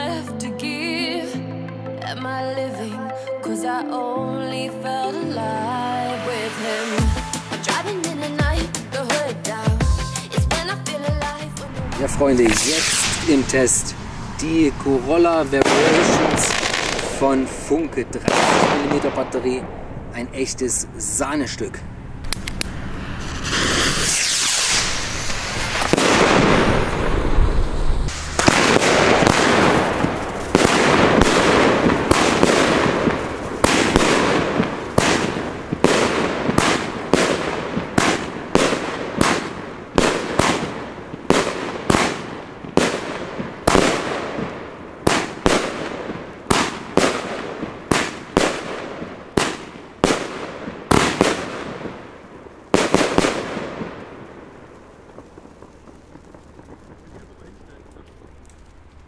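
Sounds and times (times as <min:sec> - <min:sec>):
firework battery shots: 0:11.9 - 0:59.0.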